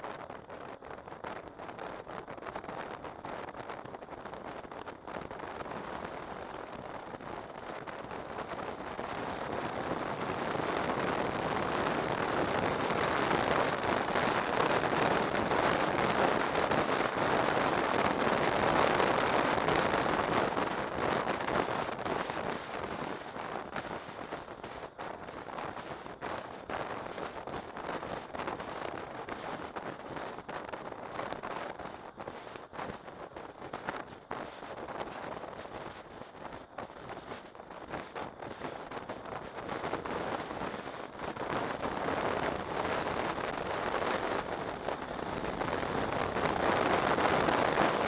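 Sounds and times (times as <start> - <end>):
wind rushing over microphone: 0.0 - 48.0
motorcycle riding noise: 40.4 - 48.0.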